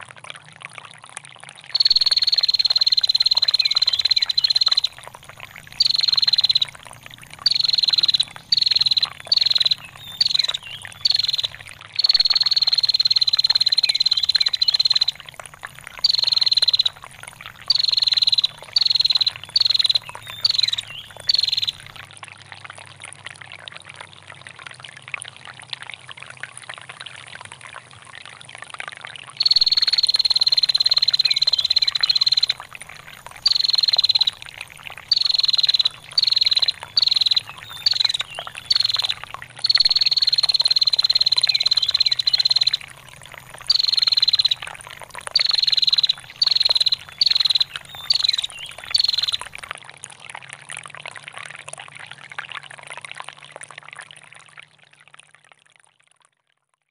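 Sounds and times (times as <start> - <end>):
trickling water: 0.0 - 56.9
bird calling: 1.8 - 15.2, 15.9 - 21.9, 29.4 - 42.9, 43.5 - 49.6.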